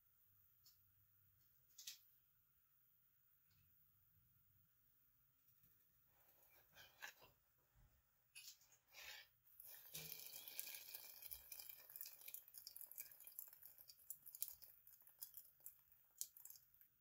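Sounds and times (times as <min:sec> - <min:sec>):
dough sizzling with crackles: 0:08.4 - 0:17.0.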